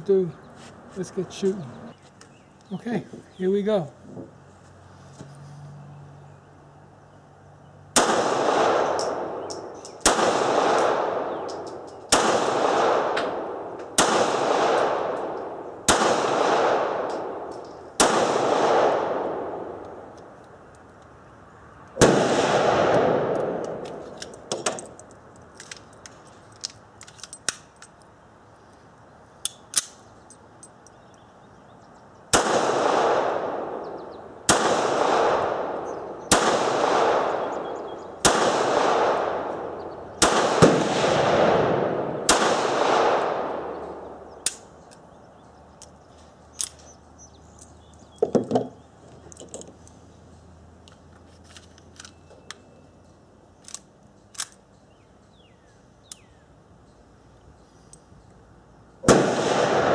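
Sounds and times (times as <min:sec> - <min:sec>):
pistol shots with echo: 0:08.0 - 0:20.0, 0:22.0 - 0:23.9, 0:32.3 - 0:44.7, 0:59.0 - 0:59.9
metallic clicks of pistol handling: 0:11.4 - 0:12.1, 0:23.3 - 0:28.1, 0:29.4 - 0:31.2, 0:45.8 - 0:48.3, 0:50.8 - 0:52.7, 0:53.6 - 0:54.8
clatter of handling: 0:50.9 - 0:52.2.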